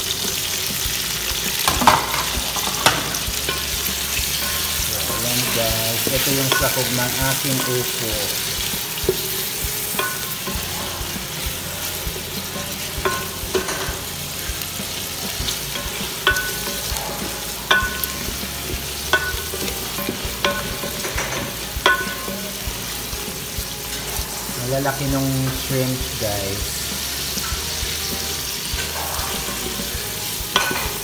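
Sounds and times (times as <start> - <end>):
shrimp sizzling in hot oil: 0.0 - 31.0
wooden spatula scraping pot: 28.7 - 30.0.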